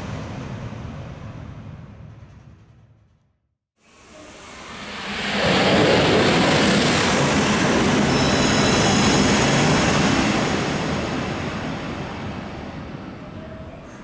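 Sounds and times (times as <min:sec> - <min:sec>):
train passing at speed: 0:00.0 - 0:03.1, 0:03.8 - 0:14.0
faint high whine: 0:03.8 - 0:14.0.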